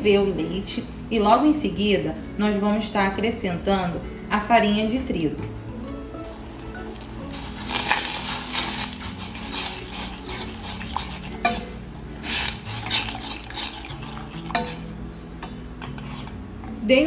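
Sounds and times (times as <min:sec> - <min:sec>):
wooden spoon scraping saucepan: 0:07.3 - 0:14.9.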